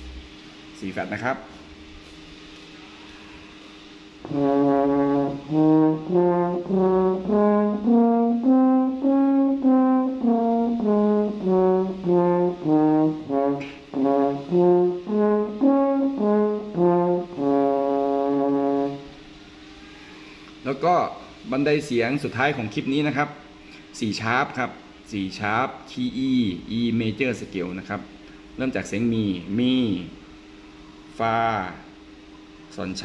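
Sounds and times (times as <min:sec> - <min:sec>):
french horn playing a scale: 0:04.2 - 0:19.2.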